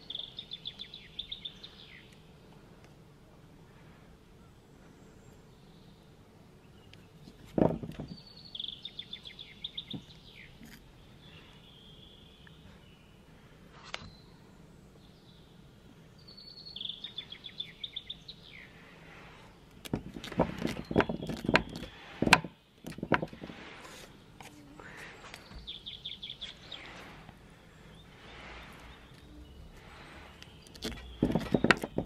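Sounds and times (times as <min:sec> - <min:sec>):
birds chirping in high trills: 0:00.0 - 0:02.5, 0:03.8 - 0:07.3, 0:08.0 - 0:19.8, 0:20.7 - 0:32.0
dog pawing at stone on boards: 0:07.3 - 0:08.2, 0:19.8 - 0:23.7, 0:30.6 - 0:32.0.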